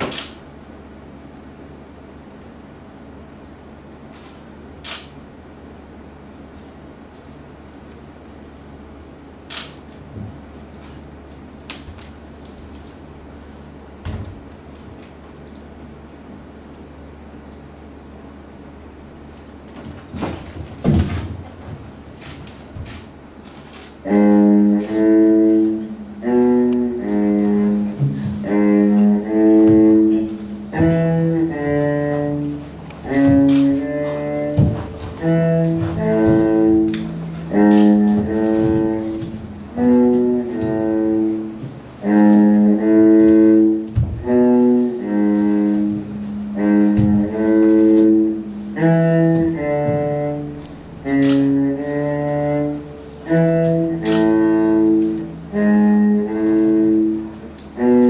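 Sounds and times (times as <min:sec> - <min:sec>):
low bowed string notes: 0:20.1 - 0:58.0.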